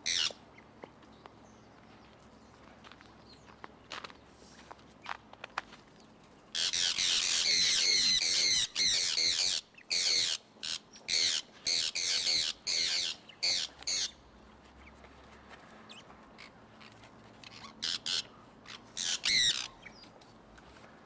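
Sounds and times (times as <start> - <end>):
parrots screeching: 0.0 - 0.3, 6.6 - 14.1, 16.4 - 19.8.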